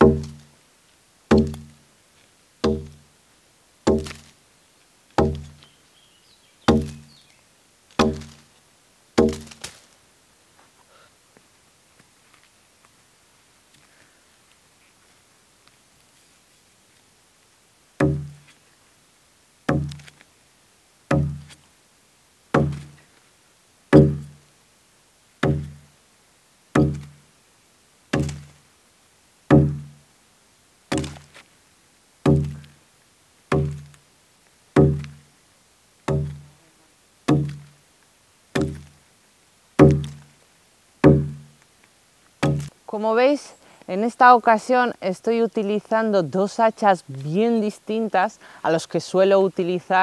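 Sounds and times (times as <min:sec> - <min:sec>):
axe chopping log: 0:00.0 - 0:00.5, 0:01.3 - 0:01.8, 0:02.6 - 0:03.0, 0:03.9 - 0:04.3, 0:05.2 - 0:05.6, 0:06.7 - 0:07.2, 0:07.9 - 0:08.5, 0:09.2 - 0:09.8, 0:18.0 - 0:18.5, 0:19.7 - 0:20.2, 0:21.1 - 0:21.6, 0:22.5 - 0:23.0, 0:23.9 - 0:24.4, 0:25.4 - 0:25.8, 0:26.7 - 0:27.2, 0:28.1 - 0:28.6, 0:29.5 - 0:30.0, 0:30.9 - 0:31.4, 0:32.2 - 0:32.7, 0:33.5 - 0:34.0, 0:34.8 - 0:35.2, 0:36.1 - 0:36.5, 0:37.3 - 0:37.7, 0:38.6 - 0:39.0, 0:39.8 - 0:40.2, 0:41.0 - 0:41.5, 0:42.4 - 0:42.7.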